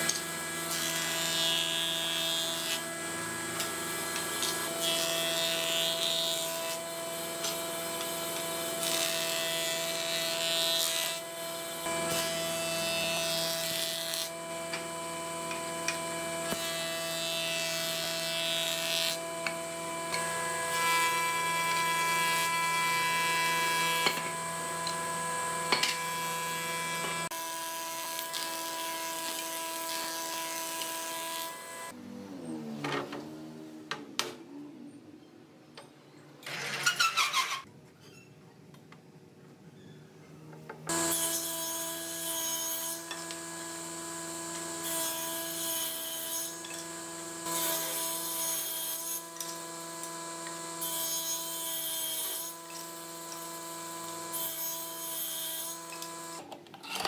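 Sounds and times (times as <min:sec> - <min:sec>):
jointer motor whine: 0:10.8 - 0:32.0.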